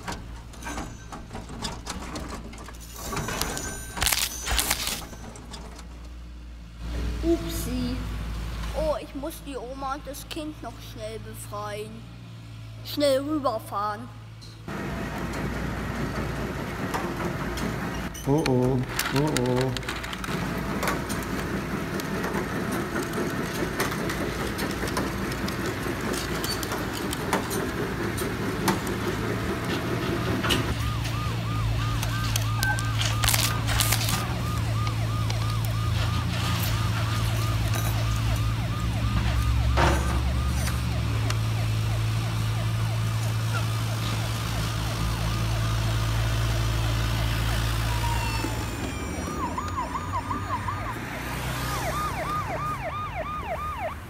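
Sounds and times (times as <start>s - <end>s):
toy siren warbling: 30.7s - 45.8s, 47.2s - 54.0s.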